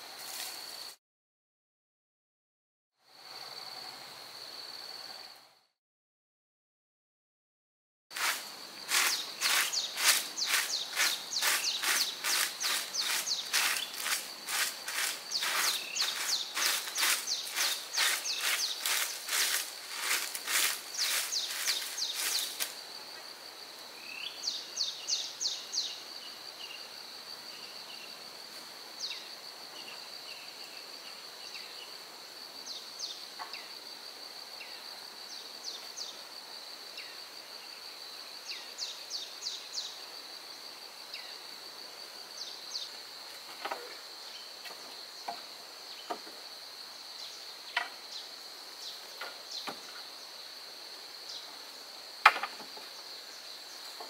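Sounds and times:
insect chirps: 0:00.0 - 0:01.0, 0:03.0 - 0:05.8, 0:08.1 - 0:54.0
insect drone: 0:00.0 - 0:01.0, 0:03.0 - 0:05.8, 0:08.1 - 0:54.0.

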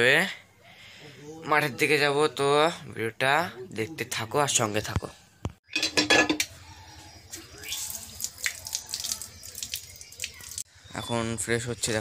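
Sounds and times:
tap water running and splashing: 0:07.6 - 0:10.6.

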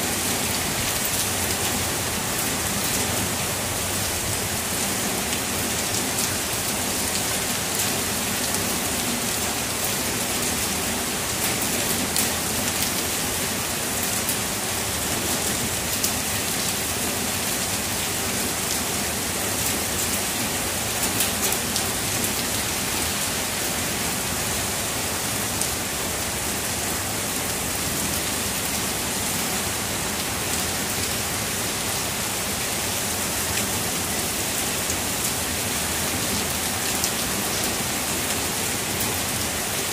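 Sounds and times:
heavy rain: 0:00.0 - 0:39.9.

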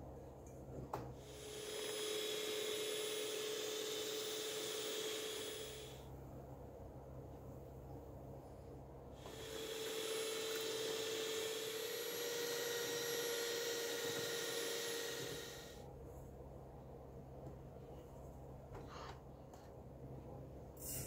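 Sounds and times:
electric hand mixer whirring: 0:01.2 - 0:06.0, 0:09.2 - 0:15.8.

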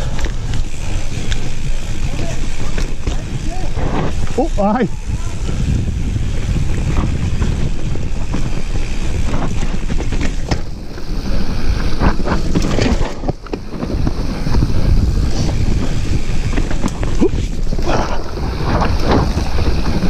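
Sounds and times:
bike rattling and knocking: 0:00.0 - 0:20.0
wind on microphone: 0:00.0 - 0:20.0.

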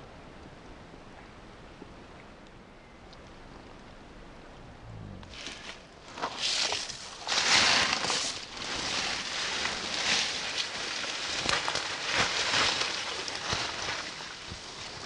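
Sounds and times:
footsteps in undergrowth: 0:05.3 - 0:15.0.

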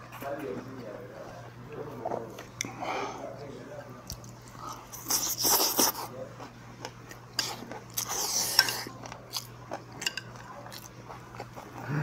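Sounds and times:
chewing: 0:04.0 - 0:12.0
chopsticks clicking on dishes: 0:08.5 - 0:09.4, 0:10.0 - 0:10.9.

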